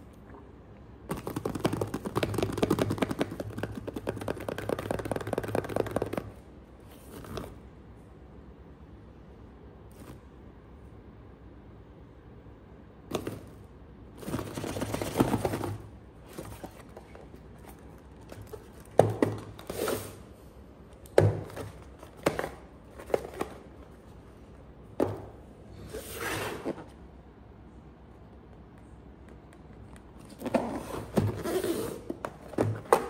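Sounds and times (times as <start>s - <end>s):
cardboard rustling and sliding: 25.8s - 26.9s.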